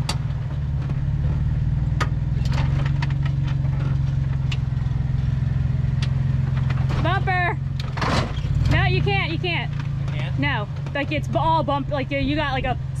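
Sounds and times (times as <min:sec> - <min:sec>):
car engine running at low revs: 0:00.0 - 0:13.0
sharp clicks and knocks: 0:01.9 - 0:04.7, 0:06.0 - 0:07.2.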